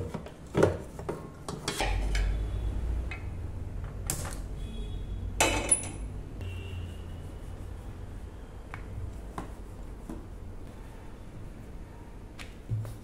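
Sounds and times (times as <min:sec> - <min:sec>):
metal bowl and cookware clinking: 0:01.5 - 0:02.4, 0:05.4 - 0:06.1
metal cookware clatter: 0:01.5 - 0:02.4, 0:05.4 - 0:06.1.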